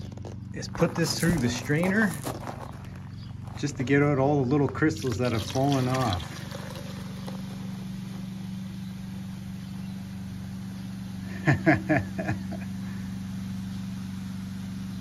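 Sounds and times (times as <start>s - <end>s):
low engine-like hum: 0.0s - 15.0s
liquid pouring through a strainer: 4.8s - 7.8s.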